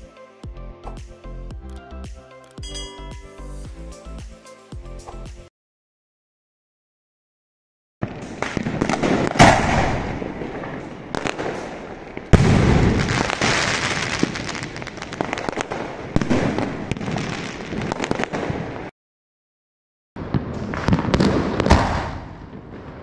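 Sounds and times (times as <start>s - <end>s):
firework bangs: 8.0s - 18.9s, 20.2s - 23.0s
firework crackle and pops: 8.0s - 18.9s, 20.2s - 23.0s.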